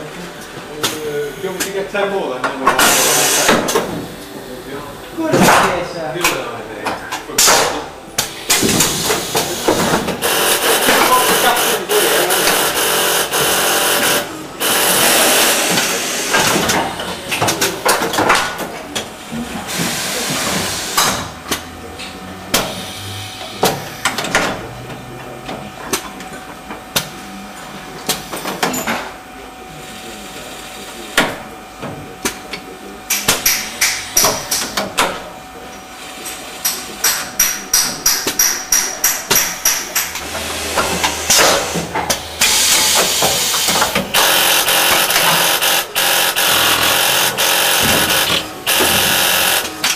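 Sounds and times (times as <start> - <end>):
machine clacks and knocks: 36.7 - 49.9
rapid regular clicking: 43.4 - 49.9.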